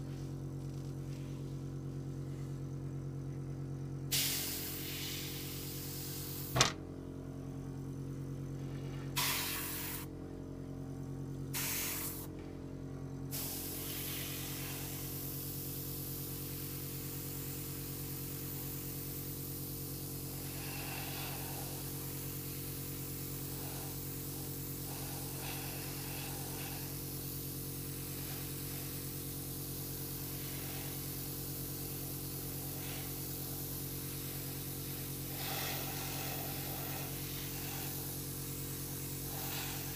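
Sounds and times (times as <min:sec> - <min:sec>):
steady low hum: 0:00.0 - 0:39.9
airbrush spraying hiss: 0:04.1 - 0:06.6, 0:08.6 - 0:10.1, 0:11.5 - 0:12.4, 0:13.3 - 0:39.9.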